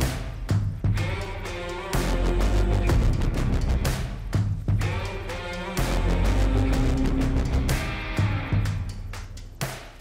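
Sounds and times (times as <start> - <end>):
background music with heavy beat: 0.0 - 10.0.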